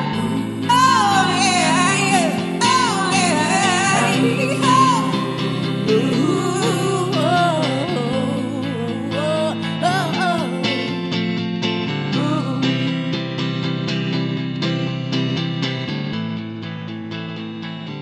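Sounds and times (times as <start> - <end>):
high sung melody with vibrato: 0.0 - 11.2
sustained chords: 0.0 - 15.8.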